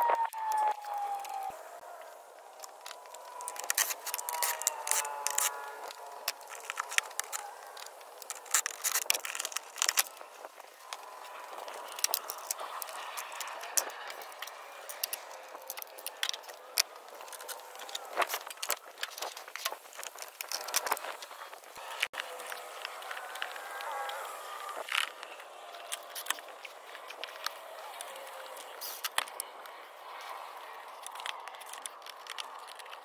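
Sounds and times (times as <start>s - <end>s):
plastic parts clicking and rattling: 0.1s - 33.0s.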